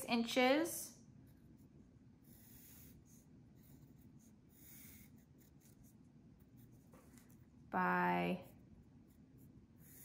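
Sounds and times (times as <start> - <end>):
pencil scratching on cardstock: 1.2 - 7.5, 8.9 - 10.0.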